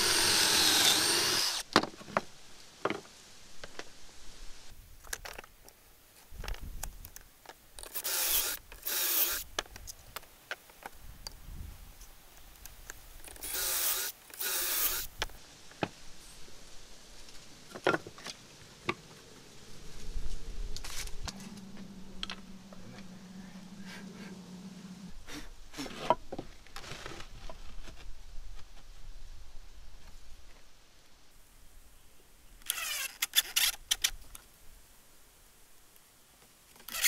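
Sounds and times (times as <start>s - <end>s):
wood rasping: 0.0s - 1.6s
steady low hum: 19.1s - 25.8s.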